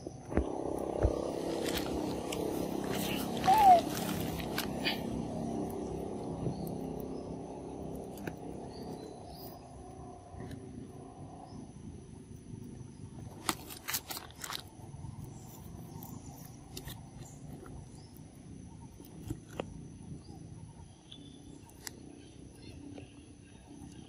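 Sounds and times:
monkeys chewing: 0.8 - 9.0.

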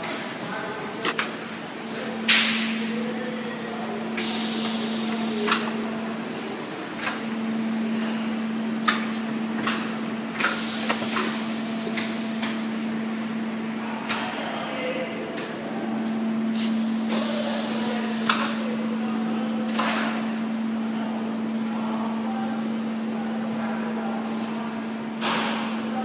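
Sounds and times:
air hiss bursts: 4.2 - 5.6, 10.4 - 12.8, 16.6 - 18.5.

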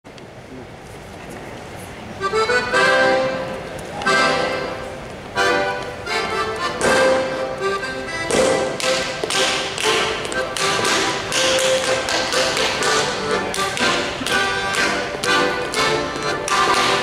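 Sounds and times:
accordion folk dance tune: 2.2 - 17.0
dancer slapping and stamping: 6.5 - 7.5, 8.1 - 17.0.

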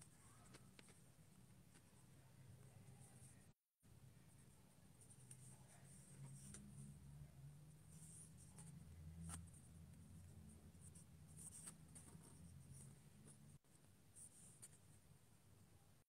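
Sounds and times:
faint low room hum: 0.0 - 16.0.

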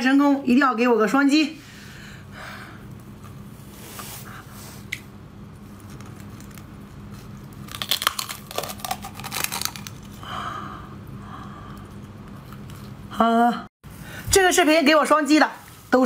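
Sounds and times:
sea urchin shell crunching: 5.8 - 10.2.

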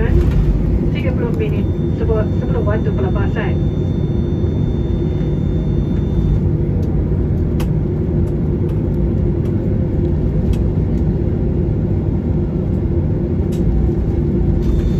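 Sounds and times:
airplane cabin rumble: 0.0 - 14.9.

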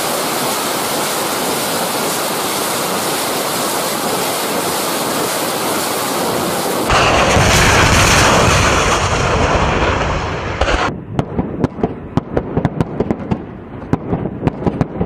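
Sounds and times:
loud steady roar: 0.0 - 11.0.

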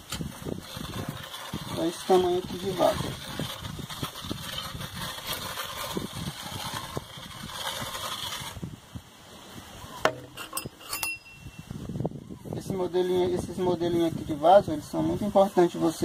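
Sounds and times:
template scraping wet mortar: 0.0 - 8.8.

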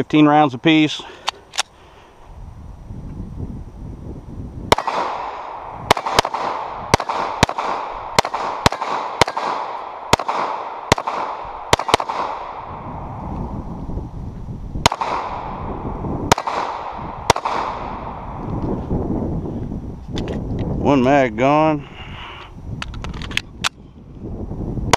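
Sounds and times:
pistol shots: 4.7 - 12.7, 14.8 - 15.6, 16.3 - 18.3.

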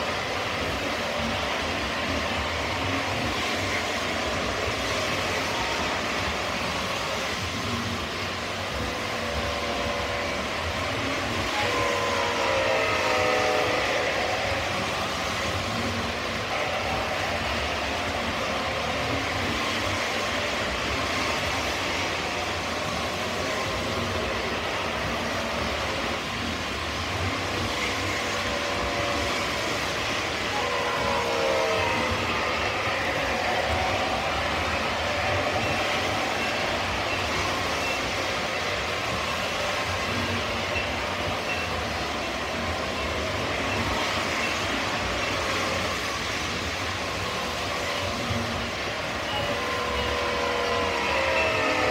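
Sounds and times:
model train wheels rumbling: 0.0 - 51.9
multi-tone locomotive horn: 8.7 - 26.3, 26.9 - 41.8, 43.6 - 51.9.

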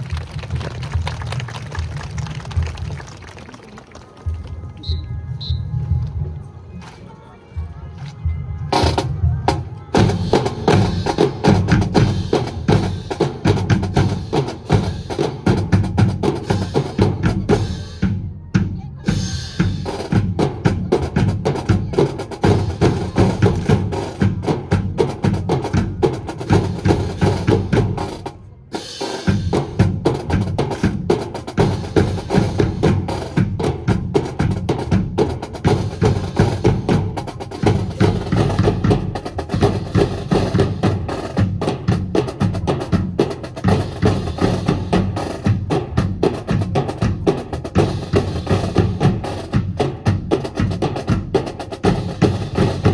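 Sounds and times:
marching drums playing cadence: 4.2 - 7.0, 7.6 - 52.9.

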